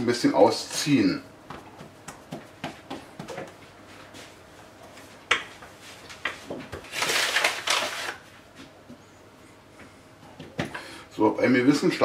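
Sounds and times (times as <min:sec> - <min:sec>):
dough scraping and rustling: 0:01.6 - 0:08.8.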